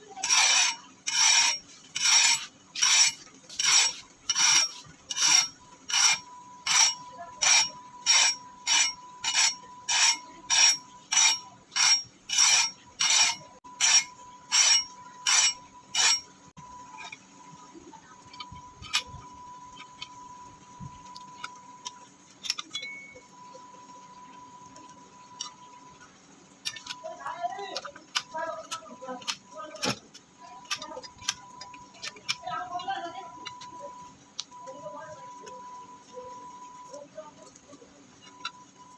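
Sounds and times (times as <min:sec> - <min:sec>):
file rasping on steel: 0:00.1 - 0:16.3
faint high whine: 0:03.0 - 0:38.9.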